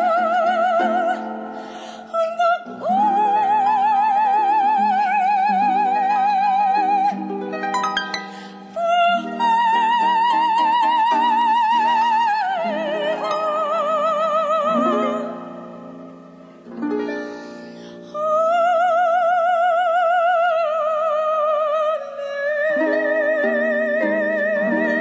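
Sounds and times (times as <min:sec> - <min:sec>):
operatic soprano singing: 0:00.0 - 0:16.3, 0:17.0 - 0:25.0
plucked harp chords: 0:00.0 - 0:18.1.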